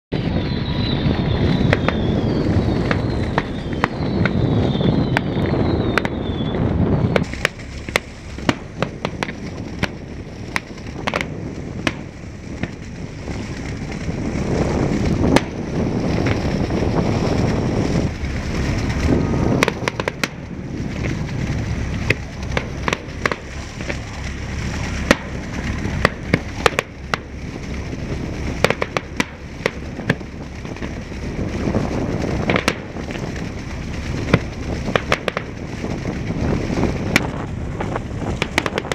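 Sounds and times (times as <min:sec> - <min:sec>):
firework whistles: 0:00.1 - 0:27.4
distant firework bangs and crackles: 0:00.1 - 0:38.9
low rumble: 0:00.1 - 0:38.9.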